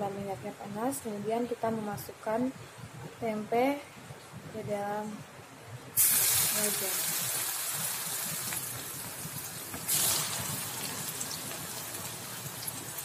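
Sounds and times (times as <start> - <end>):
food sizzling in hot oil: 6.0 - 13.0.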